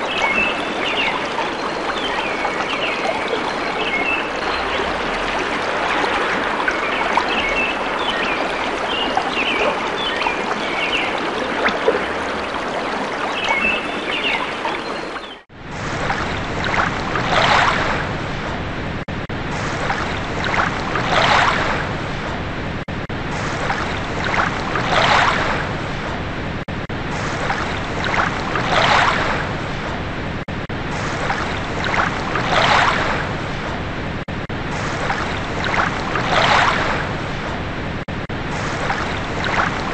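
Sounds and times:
birds chirping: 0:00.0 - 0:15.4
flowing water: 0:00.0 - 0:18.4, 0:19.5 - 0:22.2, 0:23.3 - 0:26.0, 0:27.1 - 0:29.8, 0:30.9 - 0:33.7, 0:34.7 - 0:39.9
ocean waves washing in: 0:00.0 - 0:39.9.

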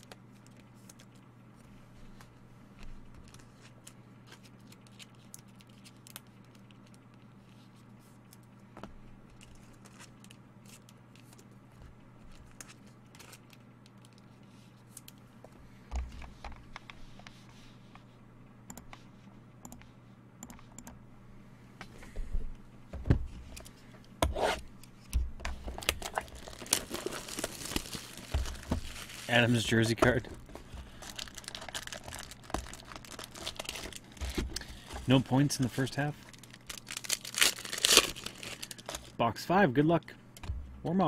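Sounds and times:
steady low hum: 0:00.0 - 0:41.0
handling trading cards: 0:24.8 - 0:39.2
packaging rustle: 0:25.7 - 0:39.2.

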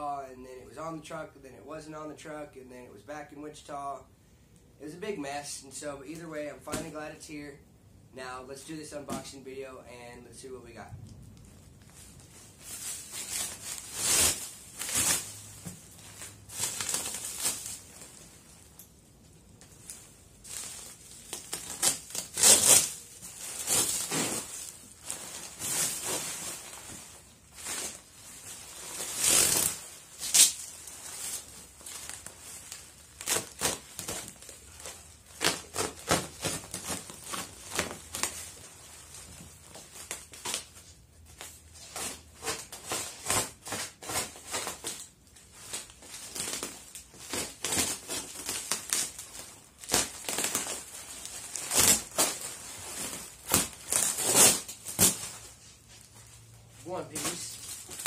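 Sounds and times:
sharp crackles: 0:11.0 - 0:38.6
cardboard scraping and ripping: 0:12.6 - 0:18.2, 0:20.5 - 0:38.6, 0:45.7 - 0:55.7, 0:57.1 - 0:58.0.

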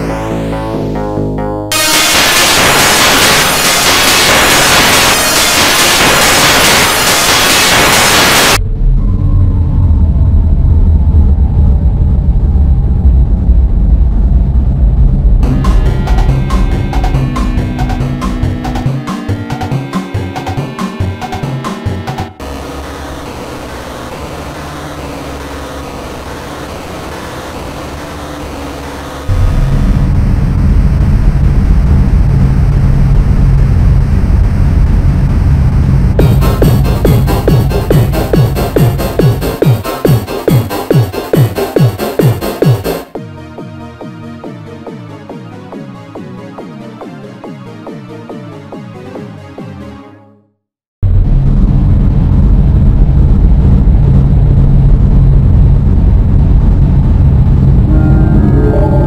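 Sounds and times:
low rumbling drone: 0:08.6 - 0:39.6, 0:51.0 - 0:59.0
organ notes: 0:15.4 - 0:22.4, 0:57.9 - 0:59.0.

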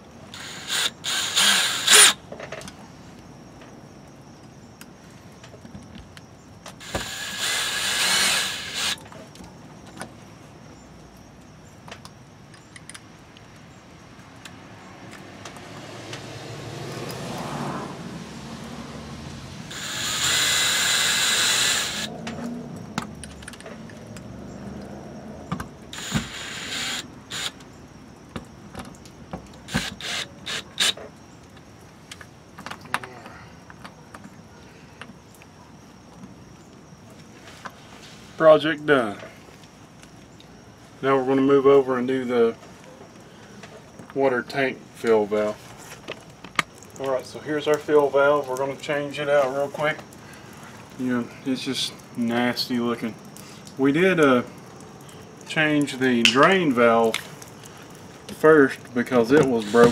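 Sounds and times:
cordless drill driving screws: 0:00.4 - 0:02.2, 0:06.8 - 0:09.0, 0:19.7 - 0:22.1, 0:26.0 - 0:27.6, 0:29.7 - 0:31.0, 0:59.4 - 0:59.9.

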